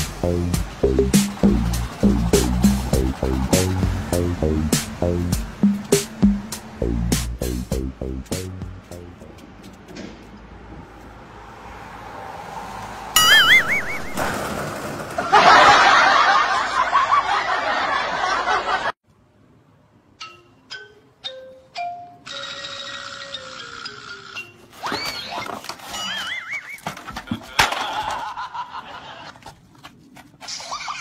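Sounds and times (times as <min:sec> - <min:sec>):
loud busy comedy music: 0:00.0 - 0:09.2
tone sliding down in steps: 0:00.0 - 0:09.3
struck notes: 0:00.0 - 0:09.9
warbling whistle: 0:13.2 - 0:14.3.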